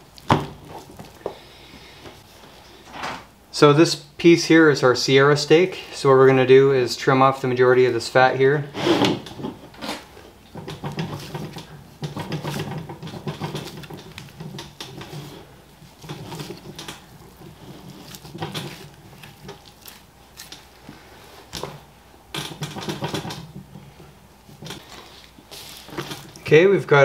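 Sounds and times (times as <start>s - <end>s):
knife slicing and scraping meat: 13.6s - 21.0s.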